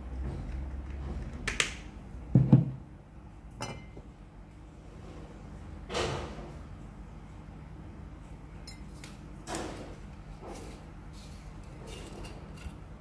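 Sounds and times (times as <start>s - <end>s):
glass bottle knocking on countertop: 2.3s - 2.8s.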